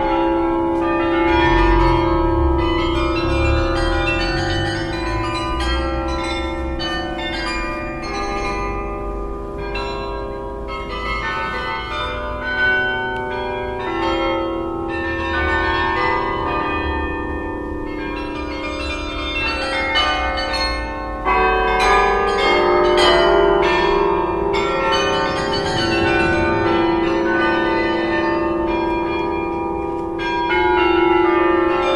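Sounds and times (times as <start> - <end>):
carillon bells playing: 0.8 - 17.4, 18.0 - 31.9
low rumble: 1.2 - 6.1, 25.1 - 28.4.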